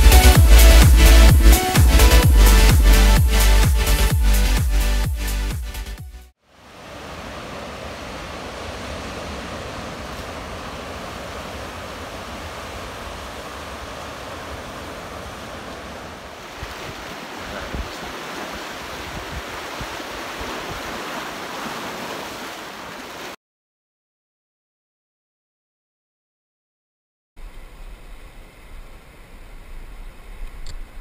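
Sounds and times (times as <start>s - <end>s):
ocean surf on rocky shore: 6.5s - 23.4s
wind rumbling on microphone: 6.8s - 22.0s.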